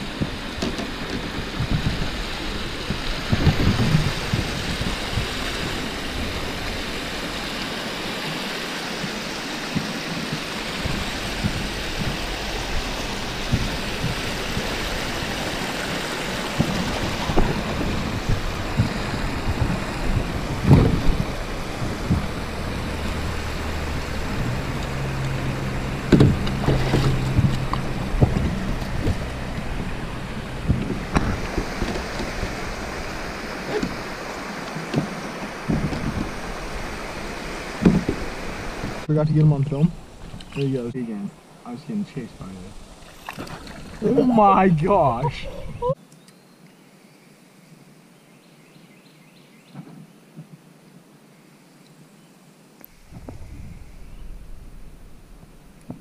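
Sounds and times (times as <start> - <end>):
creek water flowing: 0.0 - 46.1, 52.6 - 56.0
low hum: 10.6 - 40.6.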